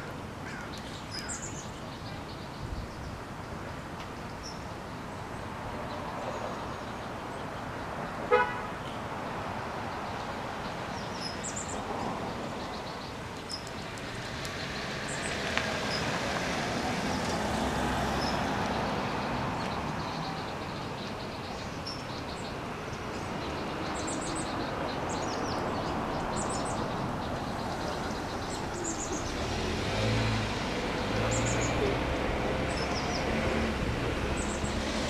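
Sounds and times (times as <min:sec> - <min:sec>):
road traffic hum: 0:00.0 - 0:35.0
vehicle passing: 0:14.1 - 0:20.3, 0:25.8 - 0:35.0.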